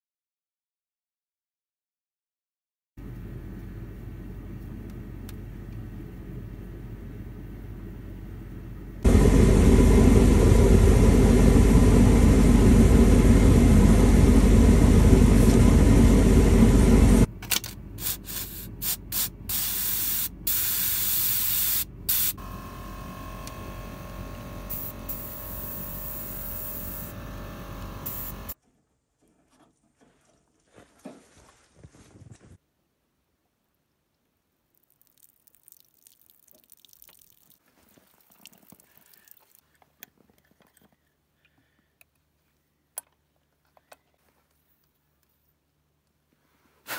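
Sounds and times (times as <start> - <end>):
compressed air blasting: 18.0 - 22.9, 23.6 - 28.6.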